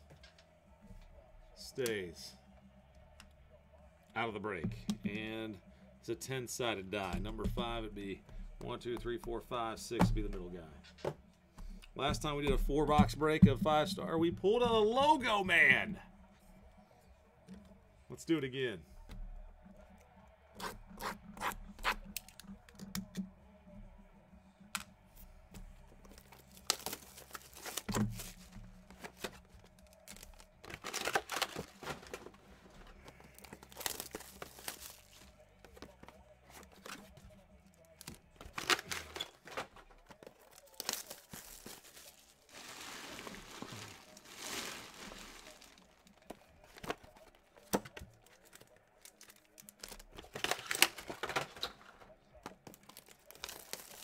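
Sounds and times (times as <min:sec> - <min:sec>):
boxes clicking and tapping: 0:25.6 - 0:37.3, 0:37.9 - 0:41.8
plastic wrap tearing and crinkling: 0:26.1 - 0:32.2, 0:33.2 - 0:35.2, 0:40.0 - 0:46.2, 0:48.2 - 0:51.4, 0:52.7 - 0:54.0.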